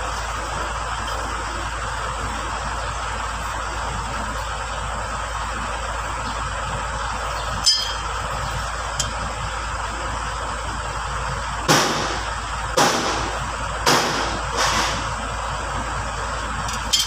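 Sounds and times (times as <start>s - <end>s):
metal brake plates clinking: 7.6s - 8.2s, 16.6s - 17.0s.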